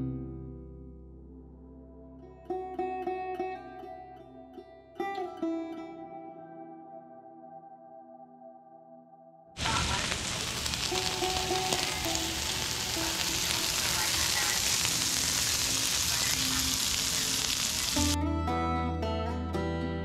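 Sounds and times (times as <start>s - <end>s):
plucked guitar music: 0.0s - 7.0s, 10.2s - 16.0s, 16.8s - 20.0s
food sizzling on a griddle: 9.6s - 18.2s.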